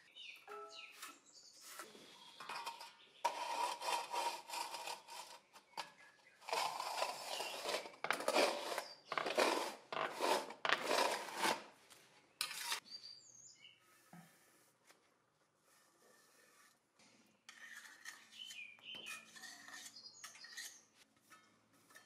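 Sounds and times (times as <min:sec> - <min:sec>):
hand tool scraping plaster wall: 0:01.0 - 0:11.8, 0:12.4 - 0:12.8, 0:15.6 - 0:22.0.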